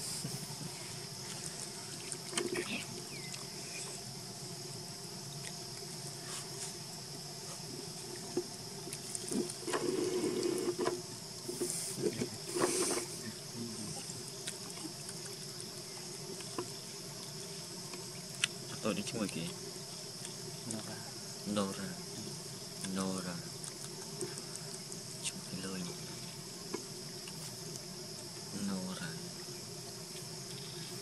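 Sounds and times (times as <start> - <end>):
insects droning: 0.0 - 31.0
rustling and knocking: 9.2 - 13.2.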